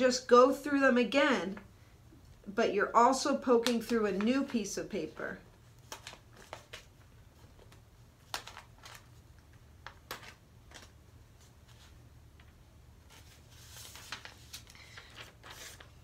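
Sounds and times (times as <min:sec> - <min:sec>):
paper rustling: 0:05.6 - 0:16.0.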